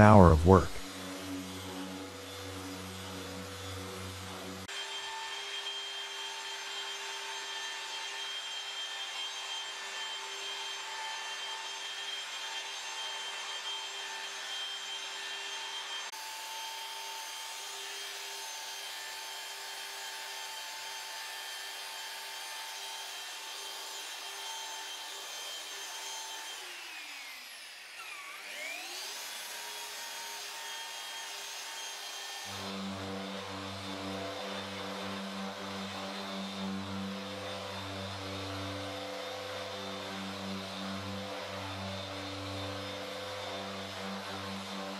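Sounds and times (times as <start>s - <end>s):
machine polisher whining: 1.0s - 10.9s, 31.9s - 44.9s.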